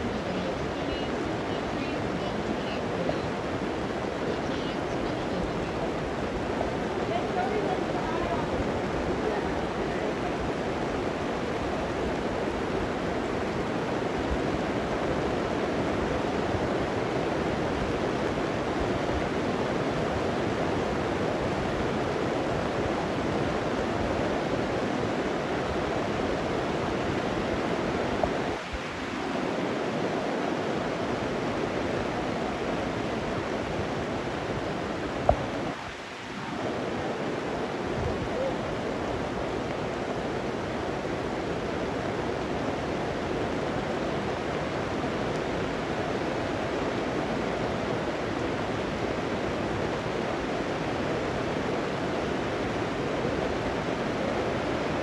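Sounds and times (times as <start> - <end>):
heavy rain pouring: 0.0 - 55.0.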